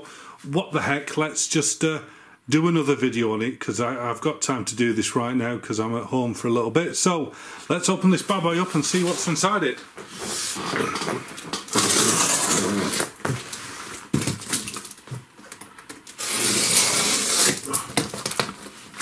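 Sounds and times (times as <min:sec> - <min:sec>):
packing tape tearing: 0:10.2 - 0:19.0.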